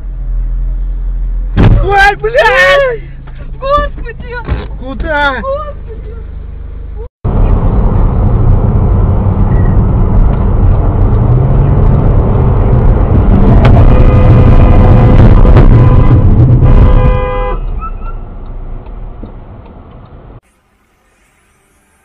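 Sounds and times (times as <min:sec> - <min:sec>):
road and engine noise in car: 0:00.0 - 0:22.0
car horn: 0:13.3 - 0:18.3.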